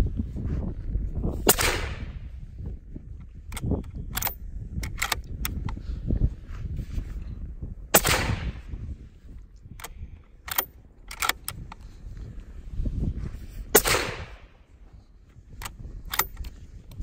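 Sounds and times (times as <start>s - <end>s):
suppressed rifle shots: 1.4s - 2.2s, 7.9s - 8.8s, 13.7s - 14.6s.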